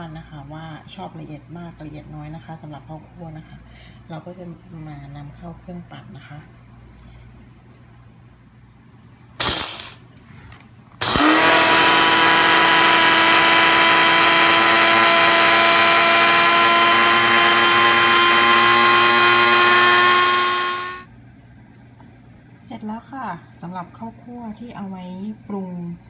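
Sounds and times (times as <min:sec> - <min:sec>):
blender grinding rice: 0:11.0 - 0:21.1.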